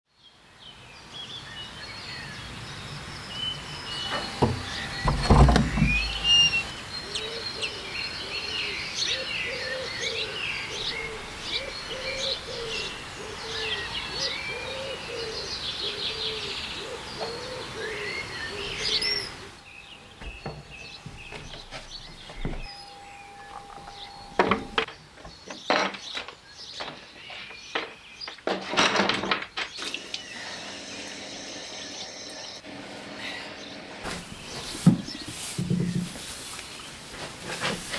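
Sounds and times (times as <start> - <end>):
songbirds chirping and singing: 0.1 - 37.9
lower bird call: 3.8 - 24.9.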